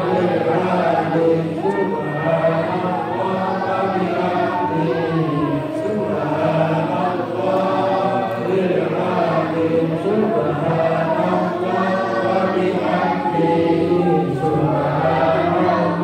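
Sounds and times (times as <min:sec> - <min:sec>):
men chanting prayers in unison: 0:00.0 - 0:16.0.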